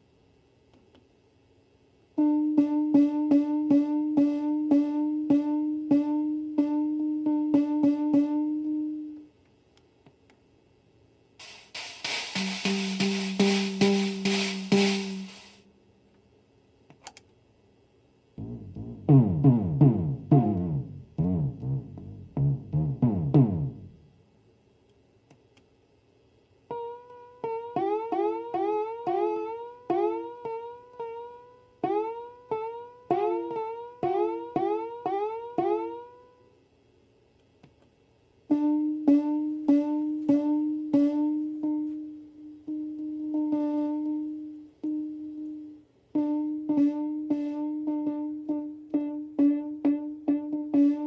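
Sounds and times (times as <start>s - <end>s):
electronic drum hits: 11.4s - 15.6s, 18.4s - 24.0s.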